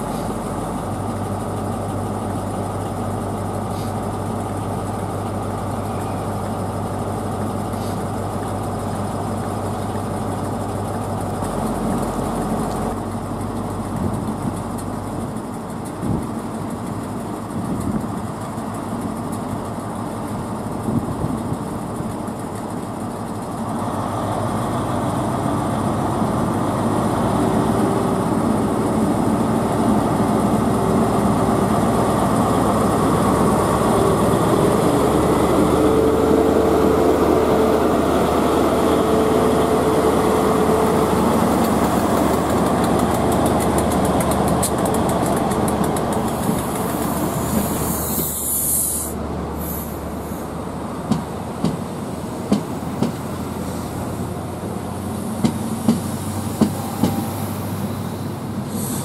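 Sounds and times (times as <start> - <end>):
diesel locomotive engine: 0.0 - 59.0
wheels clicking over rail joints: 40.3 - 48.4
air hiss: 46.3 - 50.5, 55.7 - 59.0.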